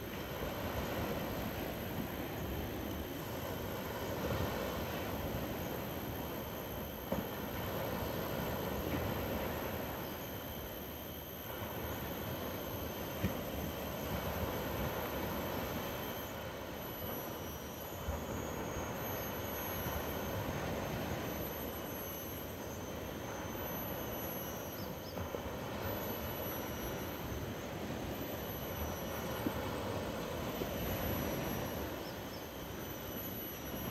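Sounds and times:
waves breaking on a beach: 0.0s - 33.9s.

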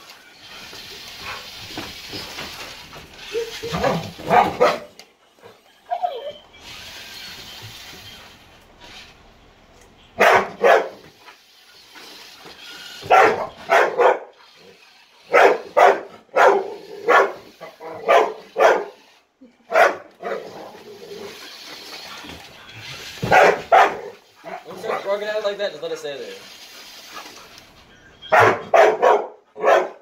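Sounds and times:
dog barking: 3.7s - 4.9s, 10.2s - 11.0s, 13.1s - 14.4s, 15.3s - 19.0s, 19.7s - 20.5s, 23.2s - 25.1s, 28.3s - 30.0s.

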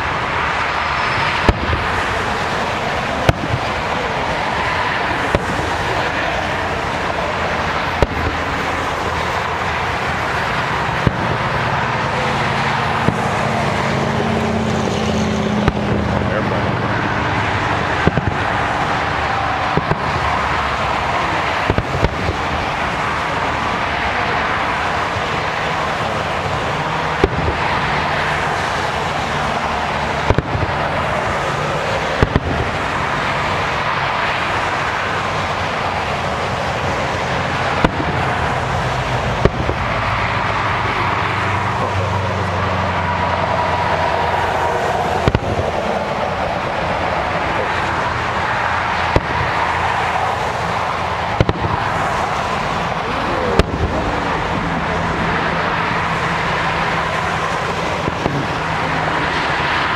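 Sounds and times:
fireworks shells bursting: 0.0s - 42.0s, 45.0s - 46.8s.

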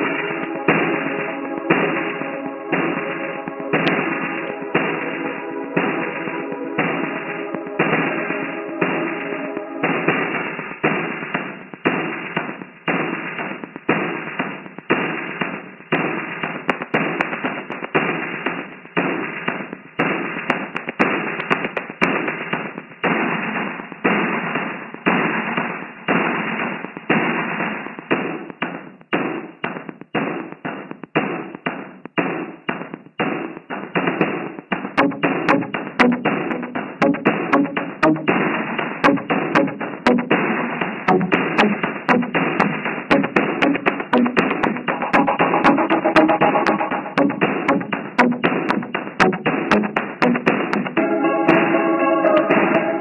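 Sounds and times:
industrial music noise bursts: 0.0s - 13.5s, 34.2s - 53.0s.

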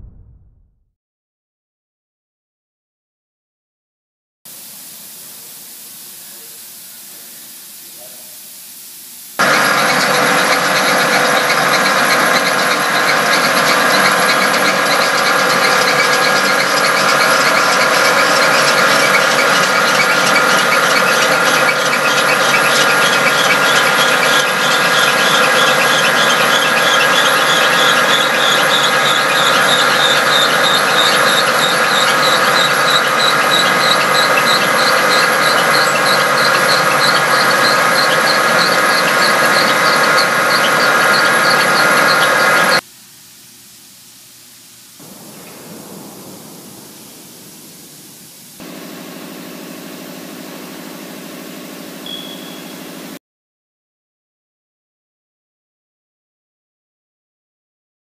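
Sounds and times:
band saw whining: 9.4s - 42.8s, 45.0s - 53.2s.

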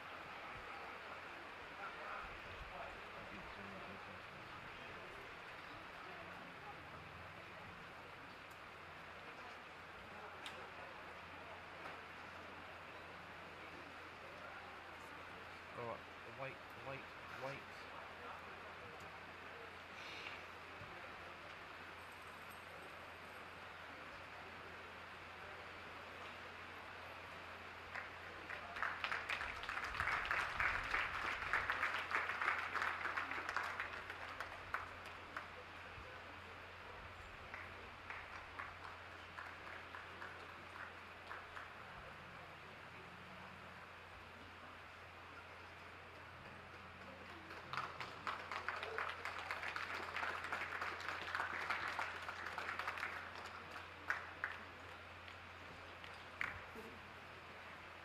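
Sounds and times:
crowd applauding: 27.8s - 35.7s, 37.4s - 42.0s, 46.4s - 56.7s.

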